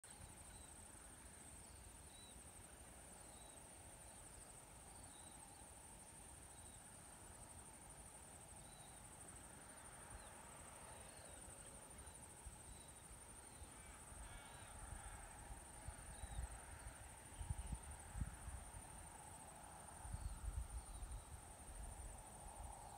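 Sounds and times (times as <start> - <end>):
high insect trill: 0.1 - 22.9
faint bird chirps: 10.2 - 15.2.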